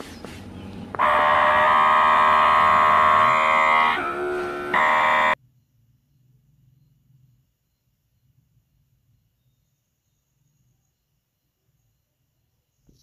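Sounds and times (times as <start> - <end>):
water pump motor whining: 0.2 - 5.4.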